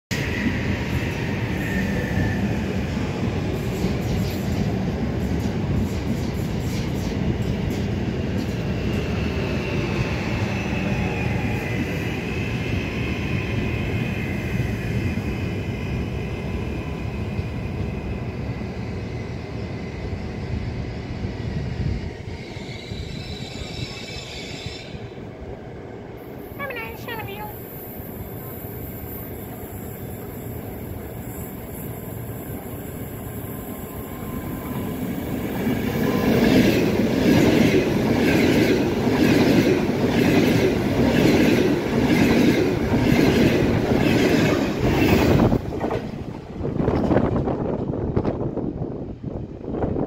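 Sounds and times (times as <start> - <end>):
high whine of train: 0.1 - 50.0
train wheels rumbling on rails: 0.1 - 50.0.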